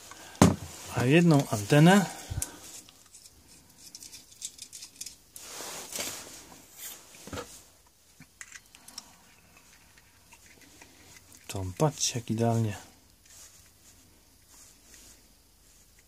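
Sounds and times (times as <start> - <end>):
metal adapters clicking and scraping: 1.0 - 5.4, 8.2 - 12.1
rustle: 4.5 - 7.9, 8.8 - 16.0.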